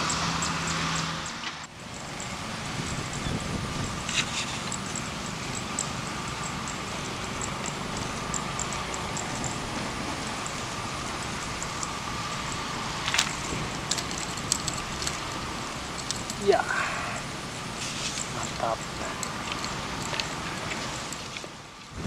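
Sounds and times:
faint high ticks: 0:00.0 - 0:16.5
low rumbling hum: 0:00.0 - 0:22.0.

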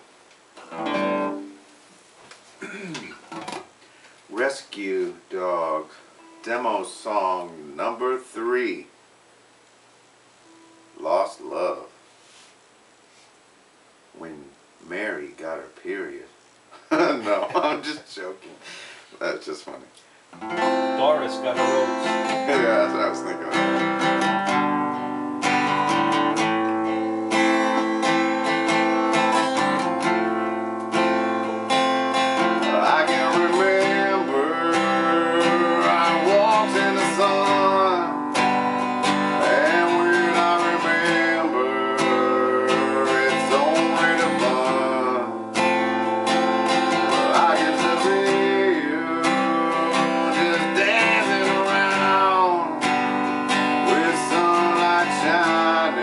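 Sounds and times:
acoustic guitar strumming: 0:00.6 - 0:01.8, 0:05.3 - 0:08.8, 0:10.4 - 0:11.7, 0:20.4 - 0:56.0
man singing: 0:21.3 - 0:24.0, 0:32.5 - 0:38.3, 0:39.2 - 0:45.5, 0:46.7 - 0:56.0.

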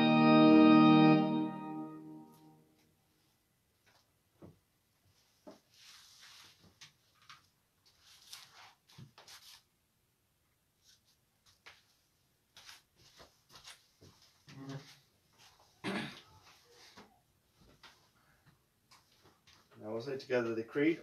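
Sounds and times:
faint rustles and soft knocks: 0:03.1 - 0:09.5, 0:10.8 - 0:20.0.

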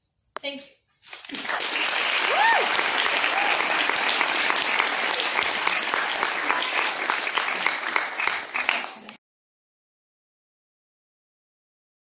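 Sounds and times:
audience applauding: 0:01.0 - 0:09.2.

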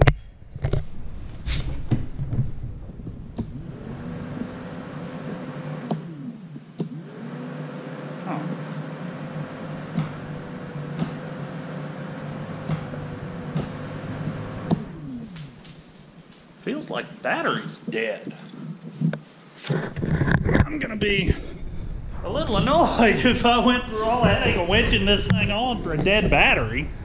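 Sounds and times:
electric starter whirring: 0:00.0 - 0:16.7, 0:19.7 - 0:27.0.

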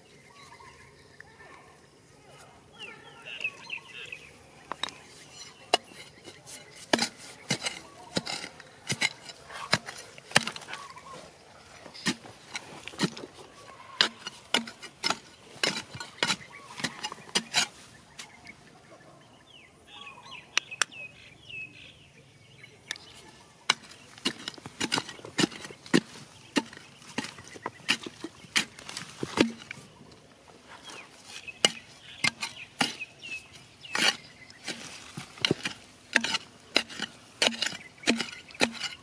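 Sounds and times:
bird calling: 0:02.8 - 0:08.2, 0:09.2 - 0:39.0
digging bar knocking into stony soil: 0:05.6 - 0:10.9, 0:11.8 - 0:18.4, 0:23.7 - 0:29.9, 0:30.9 - 0:39.0.

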